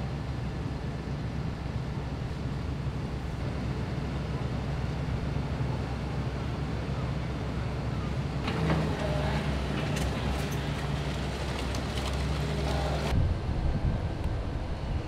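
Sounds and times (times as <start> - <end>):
low diesel drone: 0.0 - 15.0
knocks and clatters: 8.4 - 13.1.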